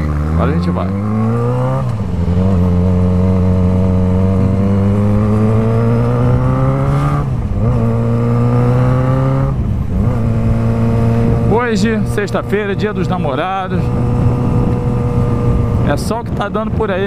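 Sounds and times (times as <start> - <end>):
motorcycle accelerating: 0.0 - 17.0.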